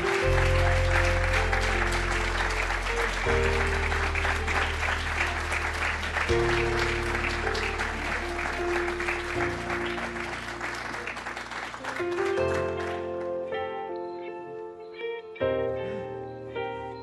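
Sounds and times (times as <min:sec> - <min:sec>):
audience applauding: 0:00.0 - 0:13.4
music with low chords: 0:00.0 - 0:14.0.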